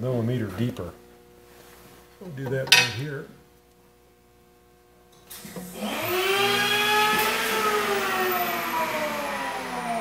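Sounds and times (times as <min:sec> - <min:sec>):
electric motor whine: 0:05.6 - 0:10.0.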